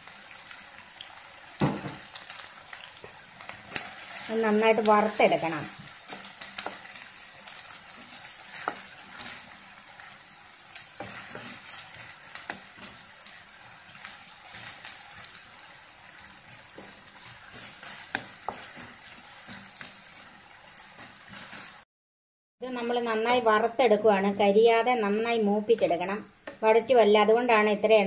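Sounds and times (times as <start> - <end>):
onions sizzling in hot oil: 0.0 - 21.9
spatula scraping and tapping pan: 5.7 - 10.1, 10.7 - 15.4, 16.1 - 21.8.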